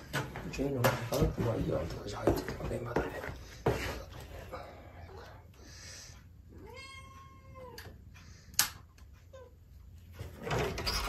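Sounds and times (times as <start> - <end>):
cat meowing: 6.6 - 7.9.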